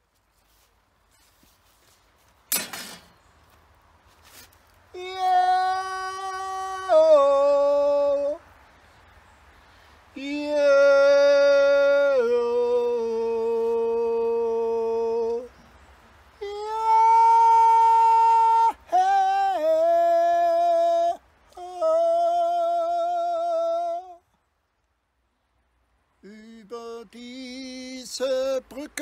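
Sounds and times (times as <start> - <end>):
man humming: 16.4 - 24.2.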